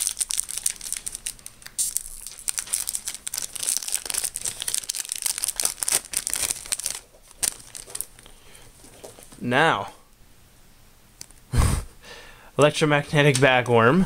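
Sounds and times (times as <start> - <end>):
foil wrapper tearing and crinkling: 0.0 - 8.3.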